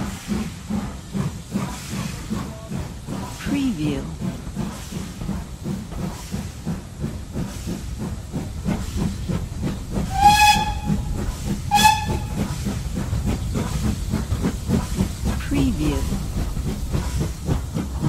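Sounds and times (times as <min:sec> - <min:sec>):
steam hiss: 0:00.0 - 0:18.0
steam locomotive running: 0:00.0 - 0:18.0
steam whistle blasts: 0:10.1 - 0:11.1, 0:11.7 - 0:12.4.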